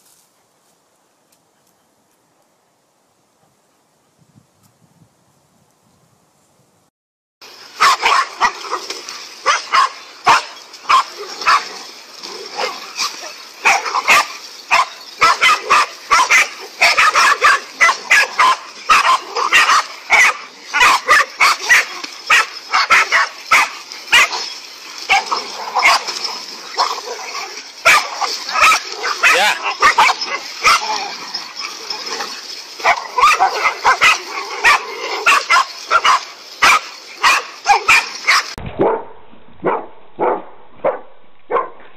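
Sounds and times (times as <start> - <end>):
dogs barking: 7.8 - 11.8, 12.4 - 39.0, 39.6 - 41.8.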